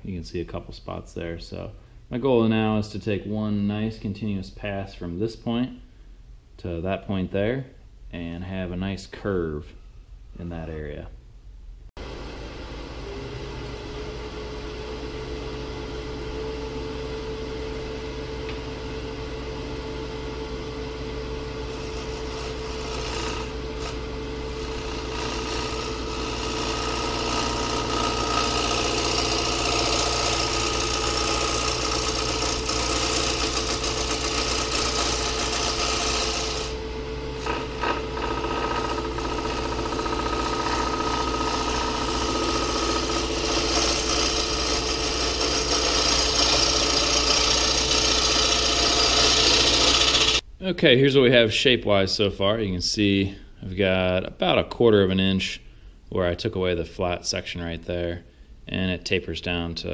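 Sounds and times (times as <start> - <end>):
wood lathe motor hum and whine: 12.0 - 50.4
gouge scraping spinning wood: 21.1 - 50.4.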